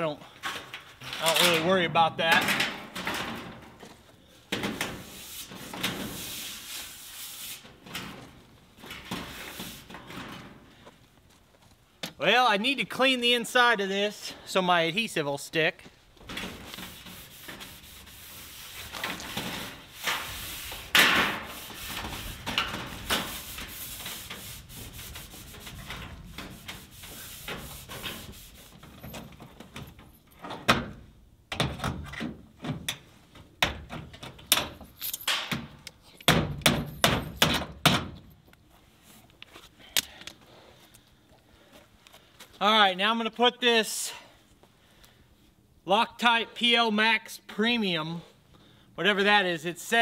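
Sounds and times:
scrubbing metal siding: 4.5s - 10.7s, 16.2s - 30.1s.

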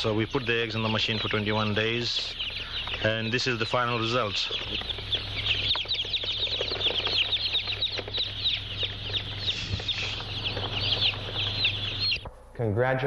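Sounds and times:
chicks peeping: 0.0s - 12.5s.

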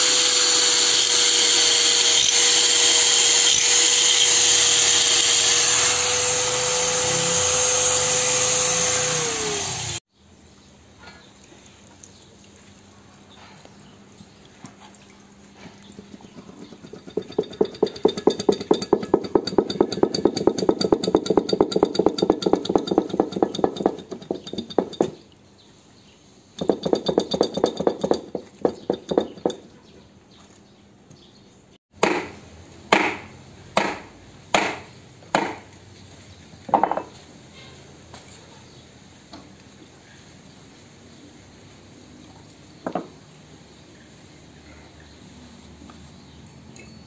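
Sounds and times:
ratchet wrench clicking: 16.8s - 25.1s.

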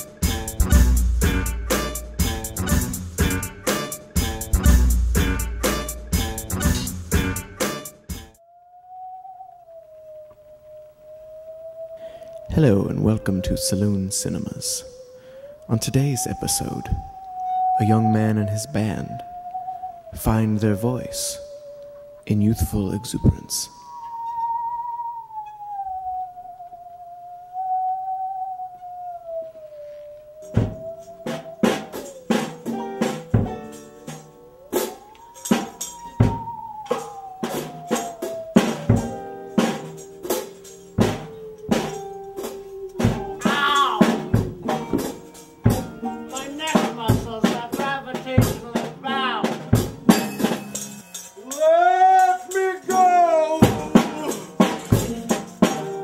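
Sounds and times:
high wavering gliding tone: 5.2s - 56.0s
acoustic guitar strumming: 32.4s - 37.1s, 38.9s - 56.0s
person whooping: 43.0s - 44.4s, 51.4s - 55.4s
drum hits and tambourine: 49.6s - 51.3s, 53.6s - 56.0s.

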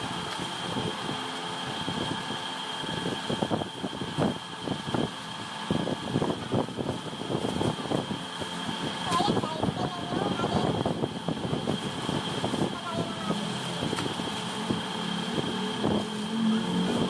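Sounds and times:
motor hum with high whine: 0.0s - 17.0s.

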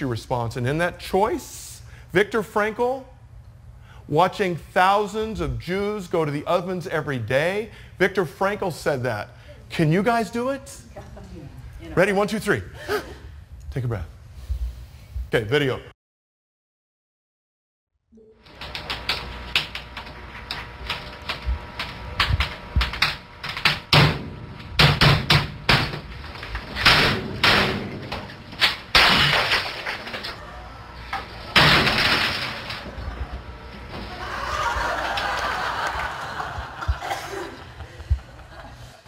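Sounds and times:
computer smashing crashes: 23.0s - 30.4s, 31.5s - 33.0s.

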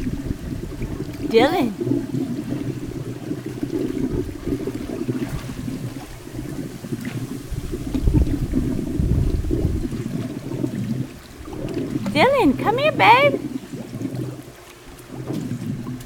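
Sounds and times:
pool water splashing and lapping: 0.0s - 16.0s.

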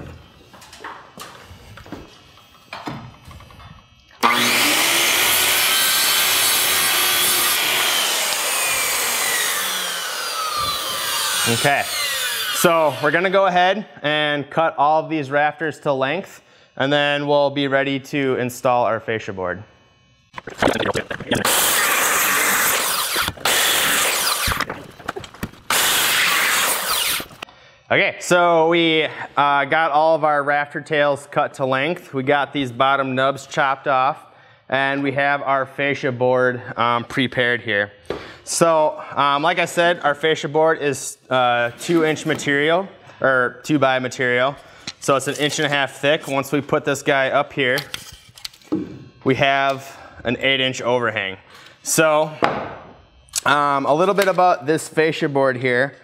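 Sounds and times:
circular saw cutting wood: 4.2s - 13.4s, 21.3s - 24.7s, 25.7s - 27.4s, 45.0s - 46.6s.

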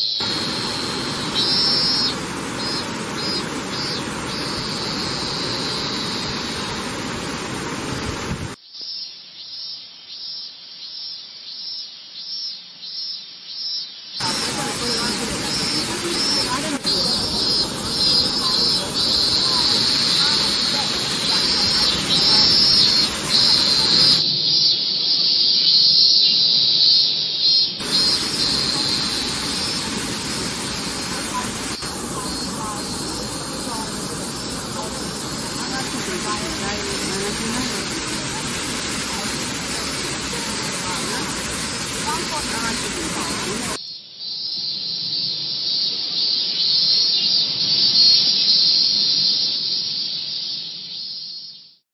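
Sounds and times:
high steady insect chorus: 0.0s - 51.8s
waterfall rushing: 0.2s - 8.6s, 14.2s - 24.2s, 27.8s - 43.8s.

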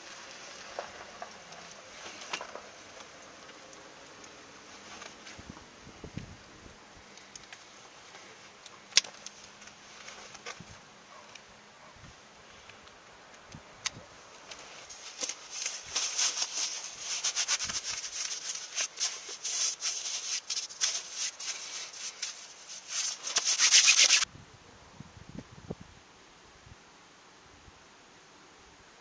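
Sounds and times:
gloves rustling and rubbing: 0.0s - 6.1s, 7.0s - 11.2s, 14.2s - 24.3s.

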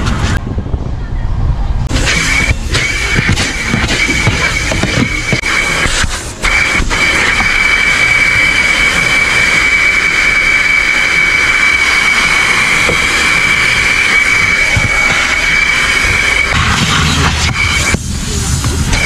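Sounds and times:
vacuum whining with suction hiss: 1.9s - 19.0s.

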